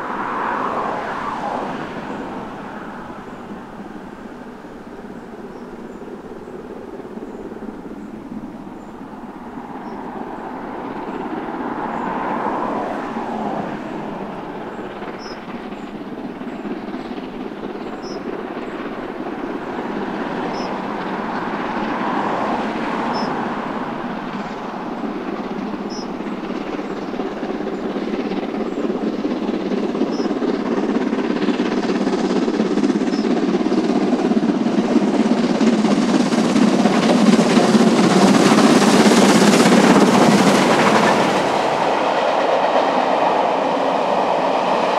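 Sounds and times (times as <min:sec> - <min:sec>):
steam locomotive hauling a train: 0:00.0 - 0:44.9.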